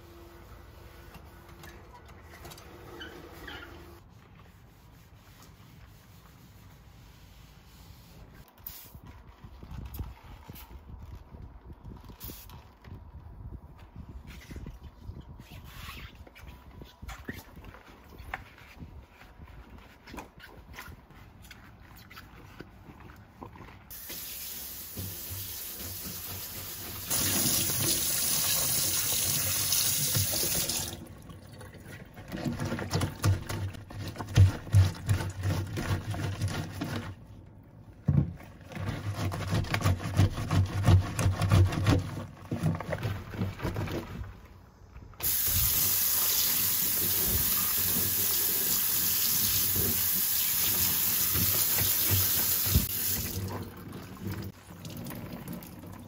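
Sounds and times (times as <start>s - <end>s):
knocking and rubbing in sink: 51.3s - 53.4s.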